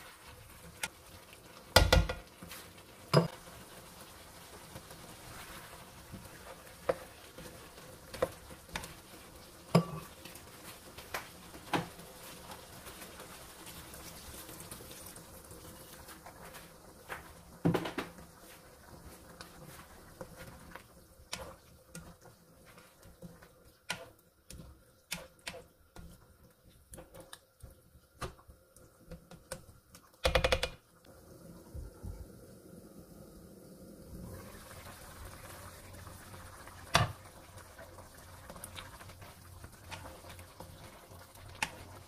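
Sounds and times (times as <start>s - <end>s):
spatula knocking against pan: 1.8s - 2.2s
cookware clatter: 3.1s - 3.3s
water pouring into wok: 12.6s - 16.1s, 31.1s - 42.0s.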